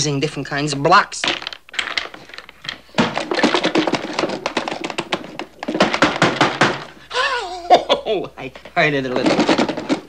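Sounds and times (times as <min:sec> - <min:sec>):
wooden blocks clattering in a box: 0:00.9 - 0:07.0, 0:08.6 - 0:10.0.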